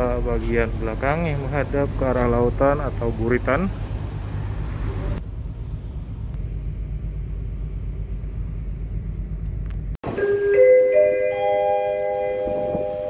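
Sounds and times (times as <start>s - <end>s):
low rumble of wind and engine: 0.0s - 10.2s, 10.9s - 13.0s
bell-like mallet percussion: 10.1s - 13.0s.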